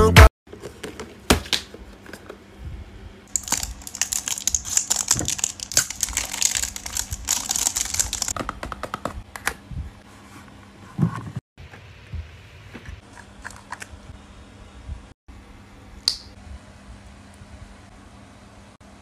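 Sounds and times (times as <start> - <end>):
plastic wrap crackling: 3.3 - 8.4
packaging taps and knocks: 7.4 - 9.2.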